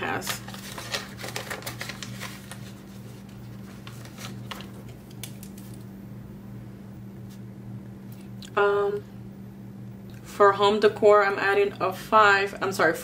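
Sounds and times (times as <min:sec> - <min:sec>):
paper rustling: 0:00.1 - 0:05.8
low hum: 0:00.4 - 0:12.7.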